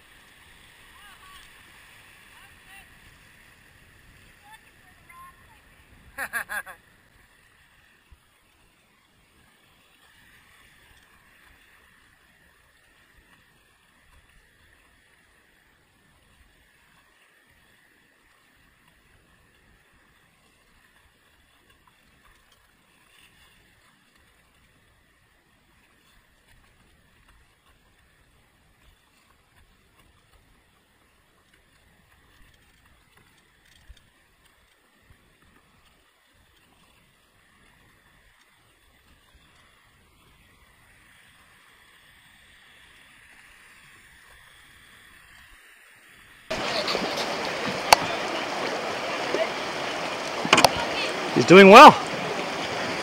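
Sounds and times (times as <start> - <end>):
river current over riffles: 0.0 - 53.0
rapids rushing: 46.5 - 53.0.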